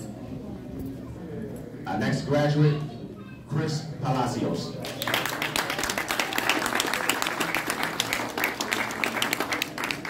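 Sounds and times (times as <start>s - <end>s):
audience applauding: 4.8s - 10.0s
hands clapping close by: 4.8s - 10.0s.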